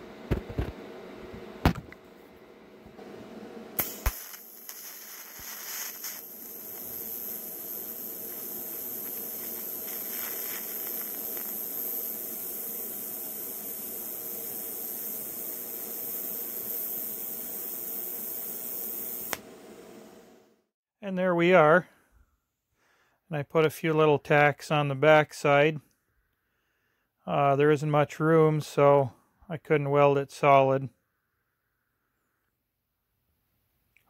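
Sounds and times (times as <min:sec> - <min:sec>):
welding arc hissing: 0:03.0 - 0:20.3
welding arc striking click: 0:03.8 - 0:19.5.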